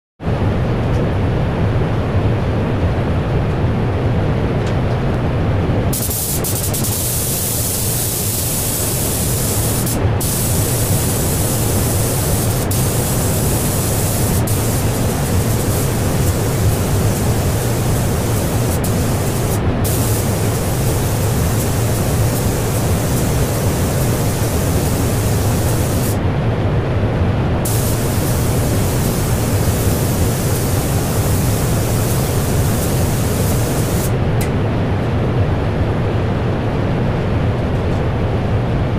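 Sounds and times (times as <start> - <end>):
ventilation rushing: 0.3 - 36.7
spray gun hissing: 5.9 - 26.2, 27.6 - 34.2.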